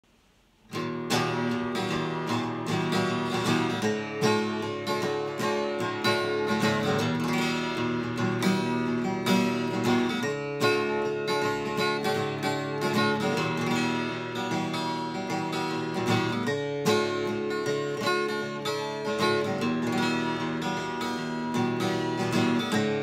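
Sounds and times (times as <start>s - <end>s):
acoustic guitar strummed in chords: 0.1s - 23.0s.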